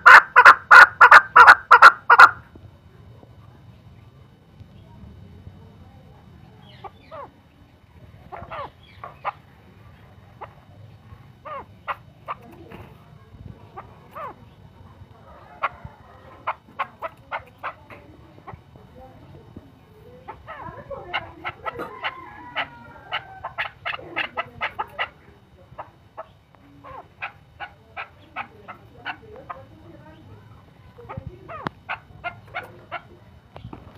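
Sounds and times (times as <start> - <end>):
partridge calling: 0.0 - 2.5, 6.6 - 7.5, 8.2 - 12.6, 13.6 - 18.7, 20.1 - 33.8.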